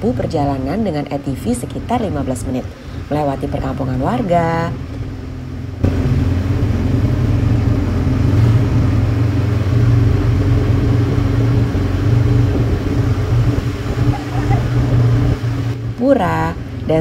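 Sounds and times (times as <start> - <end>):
road and wind noise: 0.0 - 17.0
quad bike engine running: 3.9 - 17.0.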